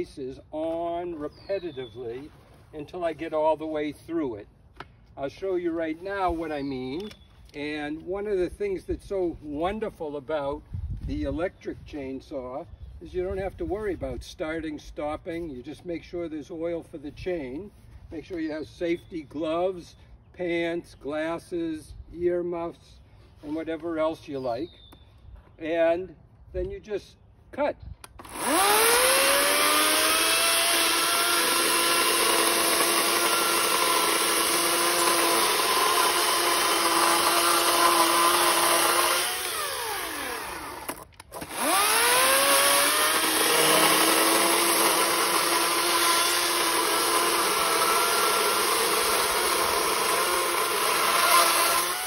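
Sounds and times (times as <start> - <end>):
electric chainsaw cutting log: 28.1 - 52.0.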